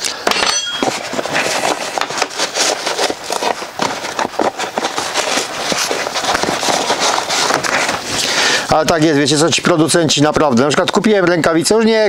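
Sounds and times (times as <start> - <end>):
rustling and clattering on shelf: 0.3 - 8.4.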